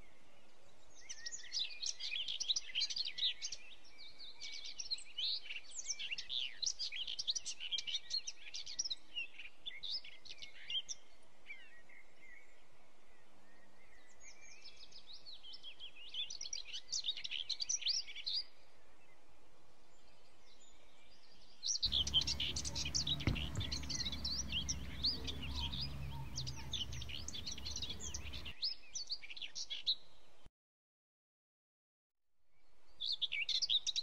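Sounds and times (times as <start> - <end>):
small birds chirping: 21.8 - 29.7
steady low rumble: 21.9 - 28.5.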